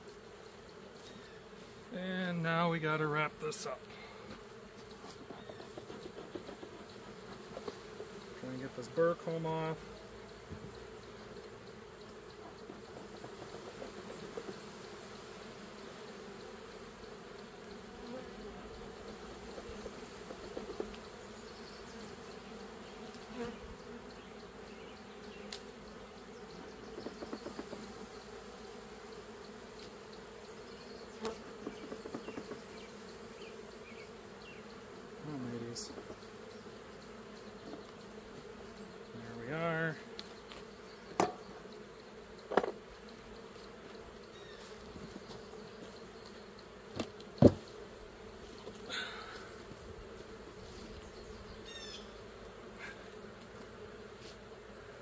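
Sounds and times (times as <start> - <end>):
honeybees buzzing: 0.0 - 55.0
loud bee buzz passing close: 0.0 - 55.0
sharp knocks: 41.2 - 41.4.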